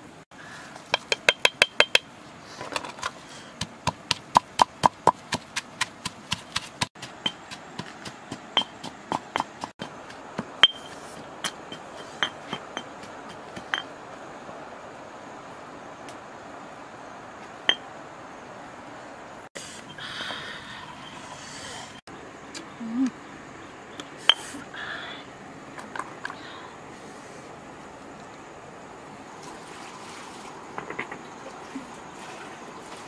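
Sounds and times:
stone pestle pounding in mortar: 3.6 - 10.8.

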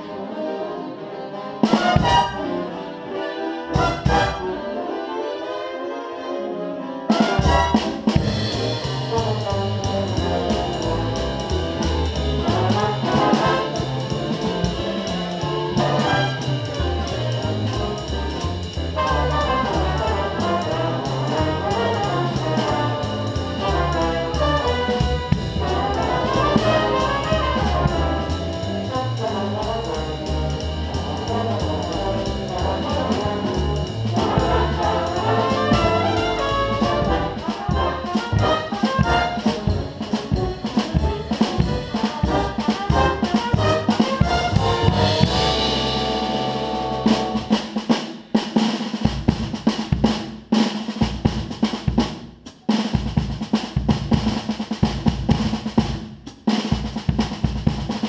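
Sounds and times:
brass section playing: 0.0 - 48.2
drum kit with cymbal strokes: 7.2 - 58.0
stepping bass line: 7.4 - 47.6.

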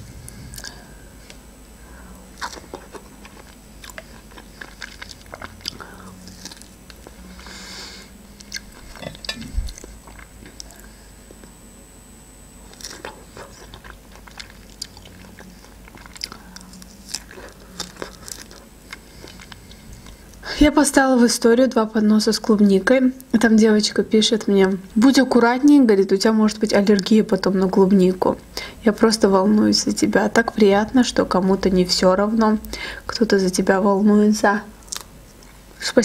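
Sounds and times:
person biting and chewing: 2.3 - 7.2, 8.3 - 10.8, 12.7 - 20.4.

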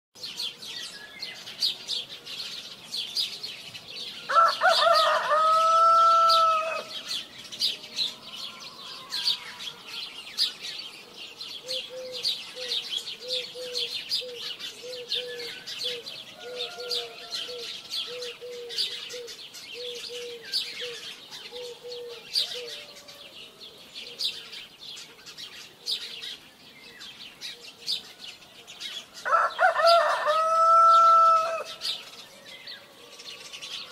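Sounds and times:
small birds chirping: 0.2 - 33.9
rooster crowing: 4.3 - 7.0, 8.1 - 10.0, 16.4 - 18.3, 29.2 - 31.8.

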